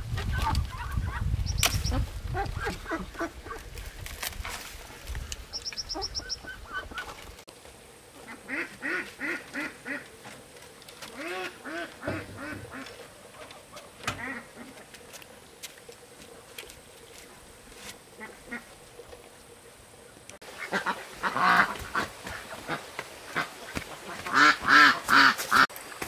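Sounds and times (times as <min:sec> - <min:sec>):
ducks quacking: 0:00.3 - 0:03.7, 0:08.2 - 0:10.2, 0:11.1 - 0:14.9, 0:18.1 - 0:18.8, 0:20.4 - 0:25.7
small bird chirping: 0:05.5 - 0:07.0.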